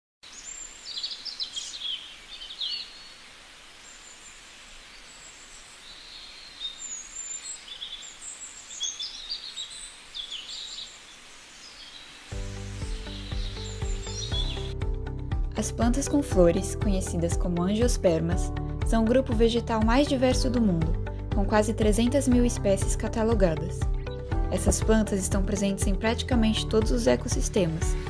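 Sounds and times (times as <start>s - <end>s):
forest ambience hiss: 0.2s - 14.8s
birds chirping and trilling: 0.3s - 14.8s
music: 12.3s - 28.0s.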